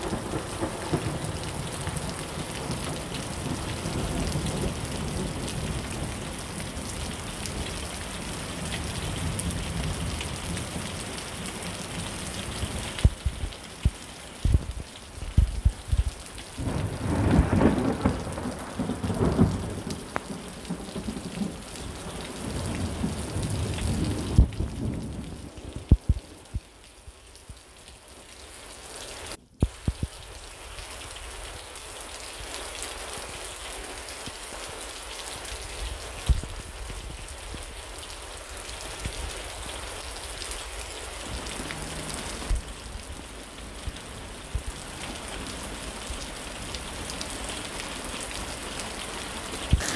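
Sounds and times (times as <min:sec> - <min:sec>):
thunder rumbling: 0:00.0 - 0:06.7, 0:11.5 - 0:26.7
raindrops tapping a surface: 0:00.0 - 0:28.0, 0:29.3 - 0:49.9
heavy rain falling: 0:00.0 - 0:49.9.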